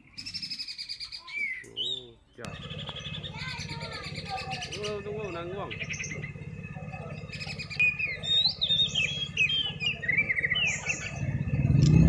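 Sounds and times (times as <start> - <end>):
bird singing whistled notes: 0.0 - 12.0.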